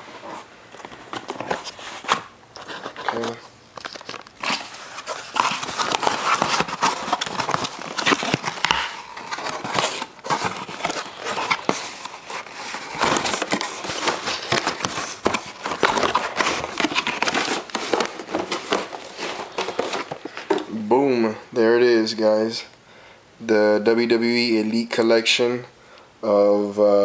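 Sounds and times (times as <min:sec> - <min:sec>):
paper and cardboard rustling: 0:00.0 - 0:20.9.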